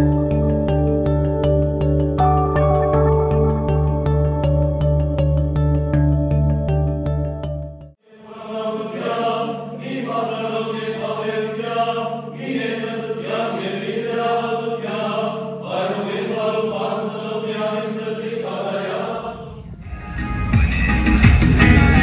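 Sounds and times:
voices chanting slow melody: 8.0s - 19.8s.

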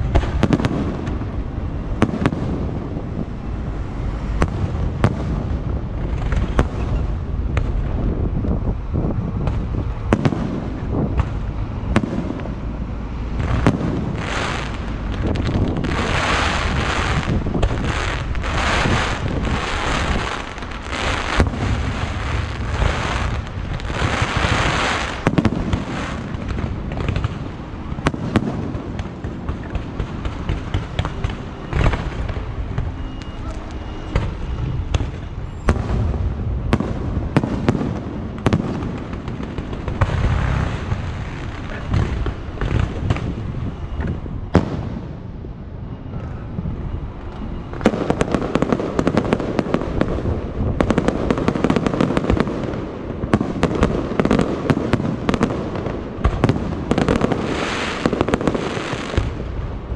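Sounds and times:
fireworks bangs and cracks: 0.0s - 45.6s, 47.2s - 59.9s
fireworks hissing launches: 13.4s - 26.3s.

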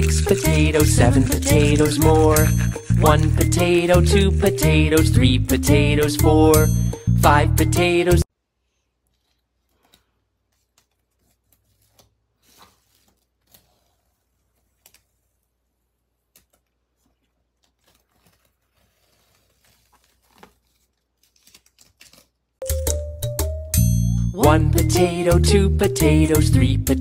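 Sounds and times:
tape being peeled off paper: 0.0s - 3.4s, 16.3s - 22.6s.

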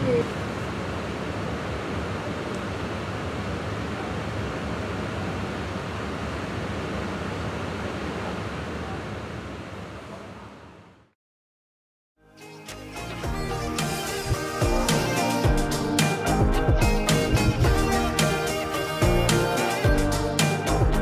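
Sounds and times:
train carriage humming: 13.3s - 20.9s.

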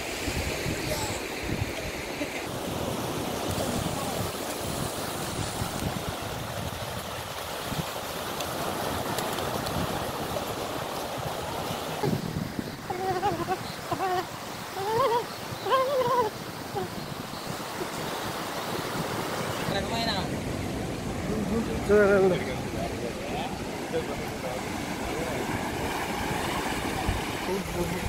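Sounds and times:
surf breaking on beach: 0.0s - 28.0s.

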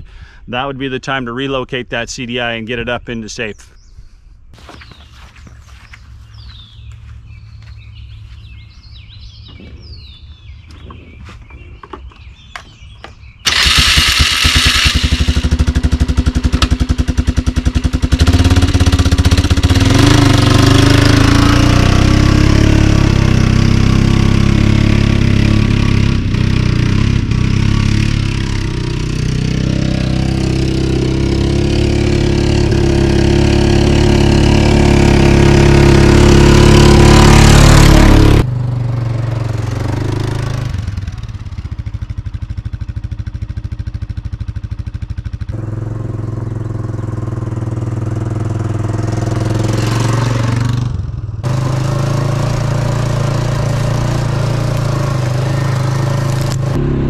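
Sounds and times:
birds chirping: 0.0s - 13.8s, 41.6s - 44.4s, 45.1s - 47.3s
engine cranking on starter: 13.4s - 15.6s
quad engine running: 13.4s - 57.0s.

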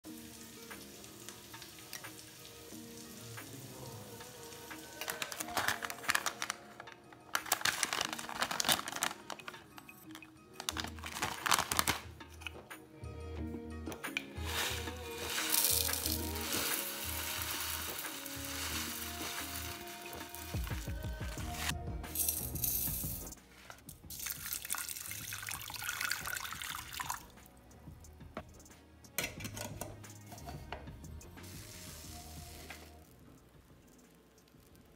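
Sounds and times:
background music: 0.0s - 34.9s
hot water pouring into a pot: 0.1s - 6.6s, 7.4s - 9.5s, 14.4s - 23.4s, 24.1s - 27.3s, 31.4s - 33.1s
plastic packet crinkling: 4.5s - 12.1s, 14.4s - 21.7s
metal lid clacking: 29.2s - 30.6s.

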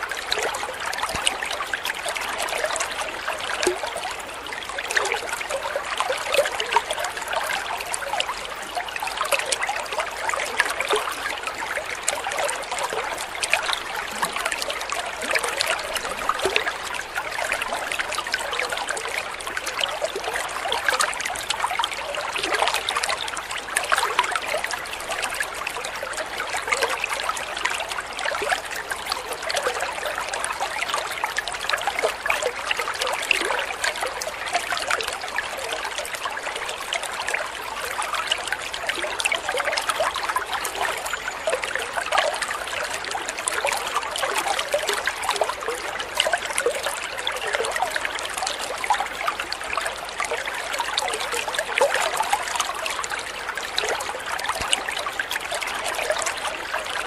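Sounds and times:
water trickling into pond: 0.0s - 57.0s.

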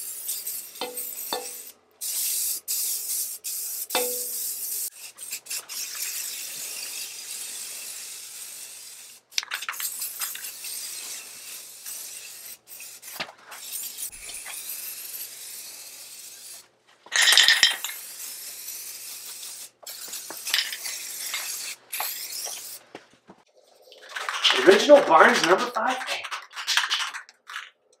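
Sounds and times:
aerosol spray hissing: 0.0s - 16.6s, 17.8s - 22.8s
mixing ball rattling in a can: 23.8s - 27.9s.

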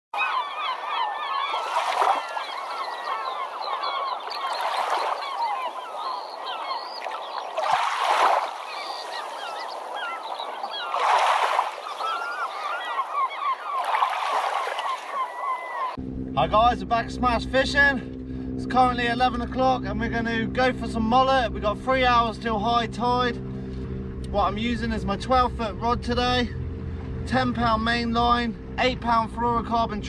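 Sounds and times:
flock of birds calling: 0.2s - 16.0s
waves washing in: 1.4s - 15.8s.

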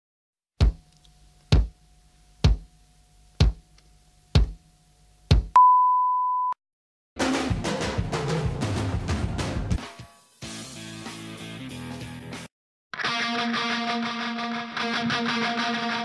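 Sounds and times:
test-tone beep: 5.6s - 6.6s
loud music: 7.2s - 12.4s.

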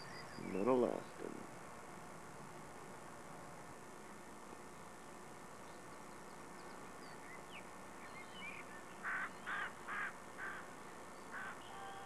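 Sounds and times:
small birds chirping: 0.0s - 1.4s, 5.5s - 12.0s
steady background hiss: 0.0s - 12.0s.

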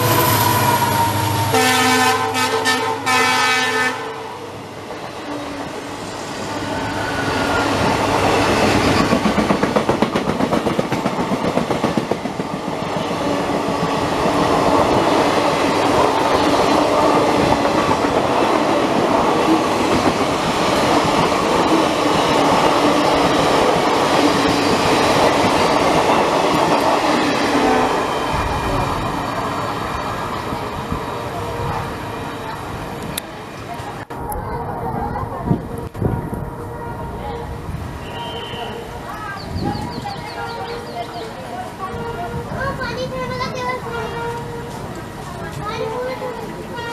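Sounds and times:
train horn blasts: 0.0s - 4.3s, 36.3s - 39.0s, 43.9s - 44.8s
train coaches clattering over rails: 6.4s - 37.4s, 38.0s - 46.9s.

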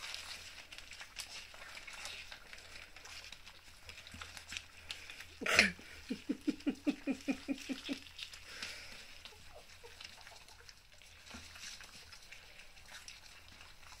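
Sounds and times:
puppies smacking and lapping: 0.0s - 14.0s.

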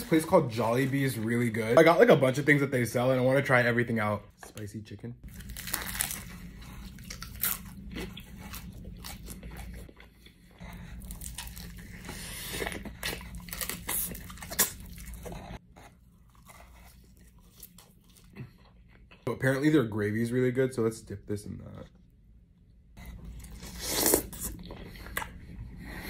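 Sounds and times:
fried chicken crunching: 5.3s - 10.0s.

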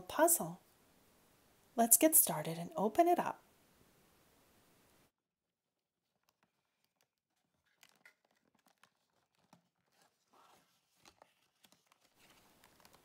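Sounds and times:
cardboard toy box crinkling: 6.0s - 13.0s.

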